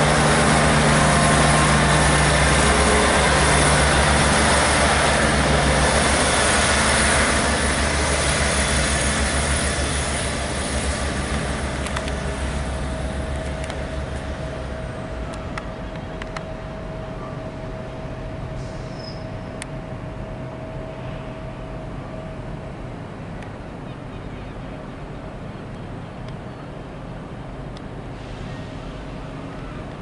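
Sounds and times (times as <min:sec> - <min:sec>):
diesel train engines running: 0:00.0 - 0:30.0.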